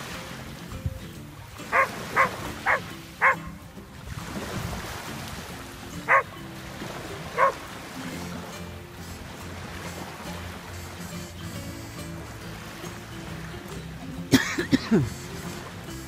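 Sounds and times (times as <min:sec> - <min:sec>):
dog barking: 0:01.7 - 0:03.5, 0:06.1 - 0:06.3, 0:07.4 - 0:07.6.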